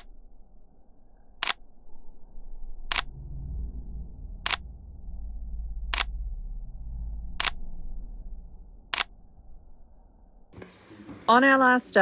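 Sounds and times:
low rumble: 0.0 - 10.6.

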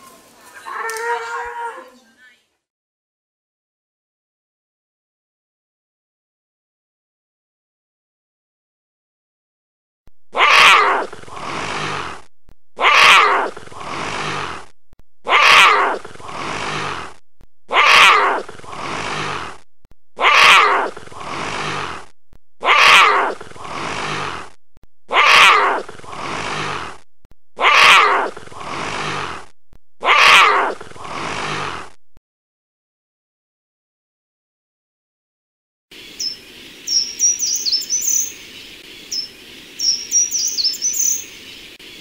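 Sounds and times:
jaguar calling: 10.4 - 14.7, 15.3 - 19.6, 20.2 - 24.5, 25.1 - 27.0, 27.6 - 29.4, 30.0 - 31.6, 36.2 - 38.4, 39.2 - 41.3.

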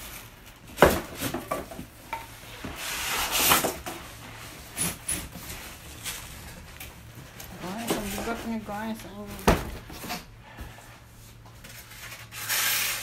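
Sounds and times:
board scraping against cardboard: 11.9 - 13.0.

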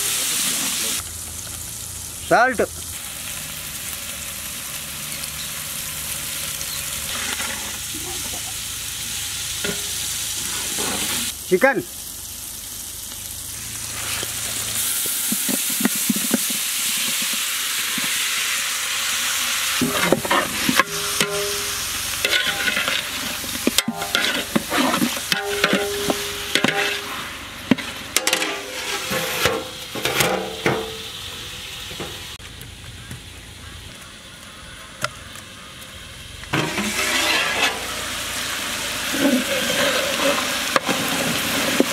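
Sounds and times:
chicken sizzling in hot oil: 0.0 - 41.9
pot ringing: 19.8 - 23.1, 23.7 - 24.6, 25.3 - 27.1
metal ladle scraping a pot: 19.8 - 30.9, 36.6 - 38.3, 39.0 - 41.9.

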